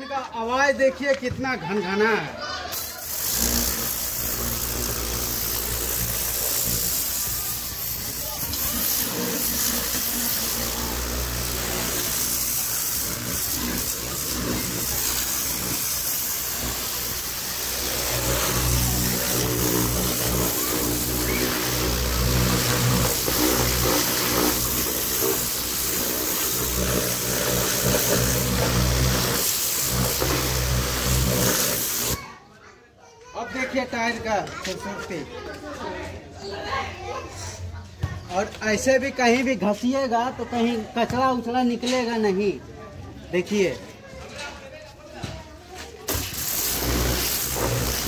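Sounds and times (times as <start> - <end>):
water jet spraying hiss: 2.7 - 32.2, 46.0 - 48.0
pressure washer motor drone: 2.8 - 32.2, 46.1 - 48.0.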